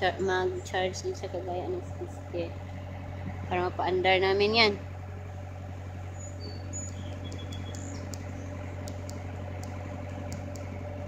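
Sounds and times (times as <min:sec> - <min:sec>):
loader engine running: 0:00.0 - 0:11.0
bird chirps: 0:06.1 - 0:09.1.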